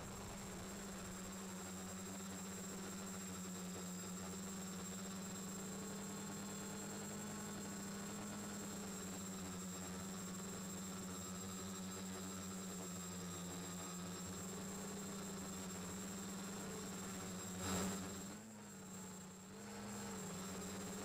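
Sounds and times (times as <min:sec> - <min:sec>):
high propeller whine: 0:00.0 - 0:01.5
quadcopter motors humming: 0:00.0 - 0:21.0.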